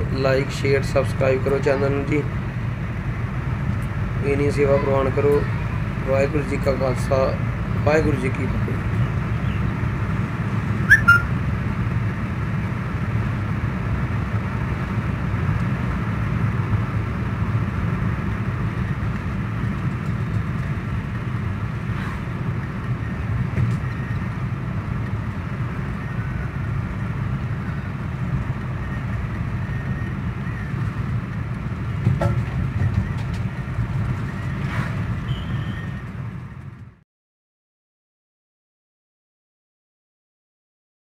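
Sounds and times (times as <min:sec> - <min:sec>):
car road noise in cabin: 0:00.0 - 0:37.0
brief sharp chirp: 0:10.9 - 0:11.3.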